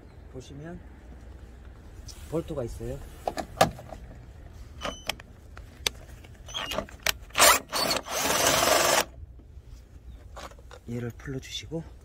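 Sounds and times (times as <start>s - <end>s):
cordless power tool running: 7.4s - 9.1s.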